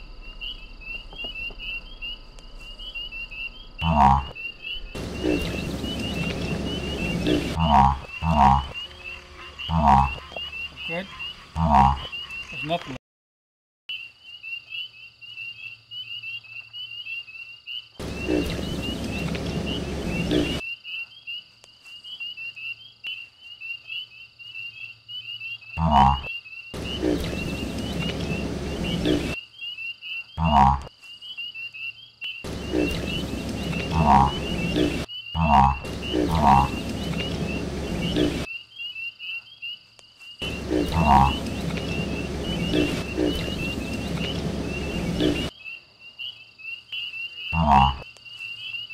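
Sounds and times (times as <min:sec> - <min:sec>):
deep grunting frog croaks: 0:03.5 - 0:13.0, 0:18.0 - 0:20.6, 0:25.7 - 0:29.4, 0:30.4 - 0:30.9, 0:32.4 - 0:38.5, 0:40.4 - 0:45.5, 0:47.5 - 0:48.1
pulsing frog trill: 0:03.8 - 0:04.4, 0:05.0 - 0:12.8, 0:25.8 - 0:29.4, 0:30.4 - 0:30.9, 0:32.5 - 0:38.5, 0:40.4 - 0:45.5, 0:47.6 - 0:48.0.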